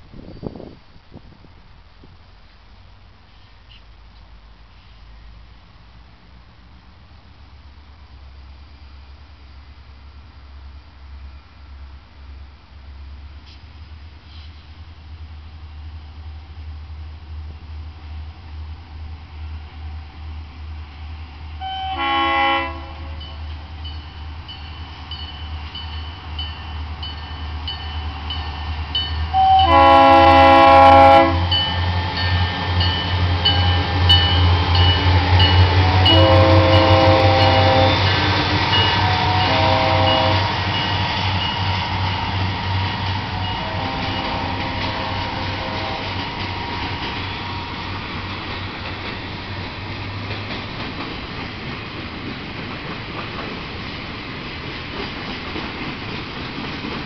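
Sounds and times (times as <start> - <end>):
locomotive engine rumble: 0.0 - 57.0
freight cars rolling past: 4.1 - 57.0
locomotive air horn blowing: 21.6 - 23.4, 29.3 - 32.1, 35.4 - 40.7, 43.3 - 46.2.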